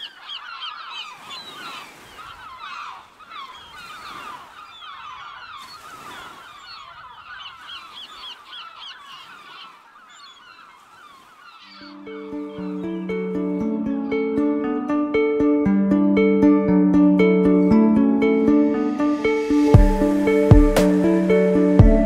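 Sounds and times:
flock of birds calling: 0.0 - 13.3.

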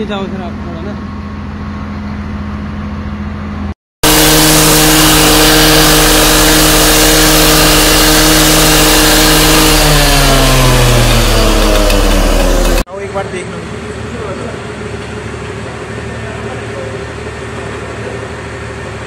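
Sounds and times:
disc cutter cutting metal: 4.0 - 12.9.

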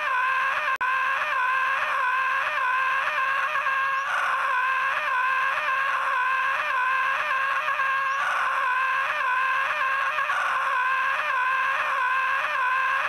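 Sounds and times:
high-pitched cartoon scream: 0.0 - 13.0.

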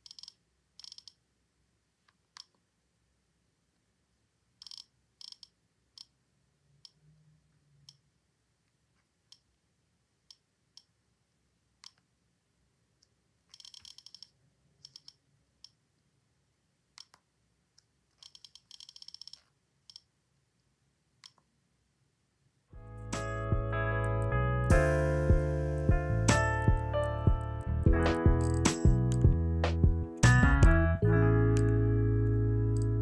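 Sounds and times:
click wheel clicking: 0.0 - 1.2, 4.6 - 6.1, 28.4 - 29.2.

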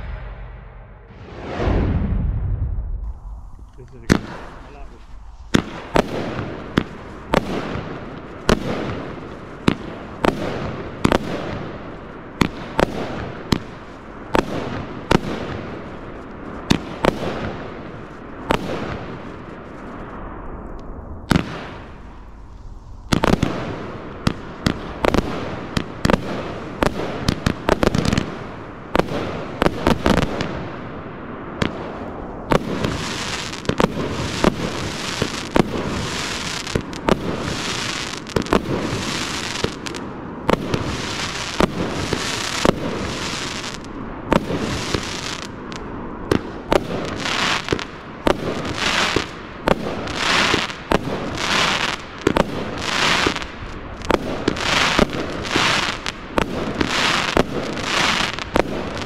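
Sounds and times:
constant wash of noise: 0.0 - 14.3
firework bangs: 0.0 - 59.0.

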